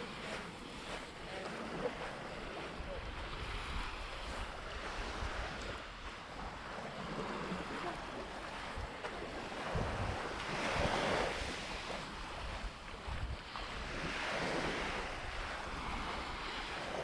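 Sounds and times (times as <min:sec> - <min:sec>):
sea waves washing onto beach: 0:00.0 - 0:17.0
wind buffeting microphone: 0:00.0 - 0:17.0.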